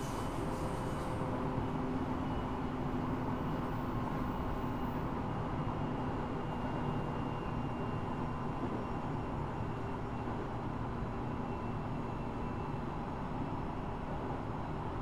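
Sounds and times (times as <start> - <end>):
train wheels rumbling on rails: 0.0 - 7.6.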